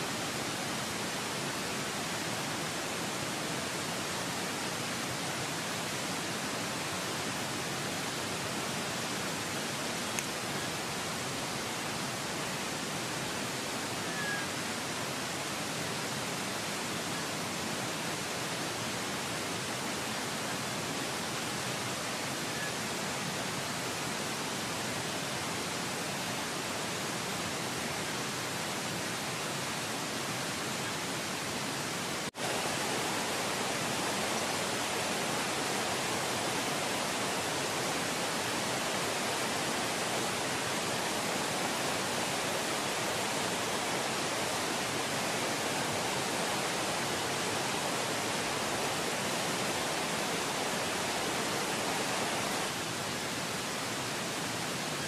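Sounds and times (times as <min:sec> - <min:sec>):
steady hiss: 0:00.0 - 0:55.0.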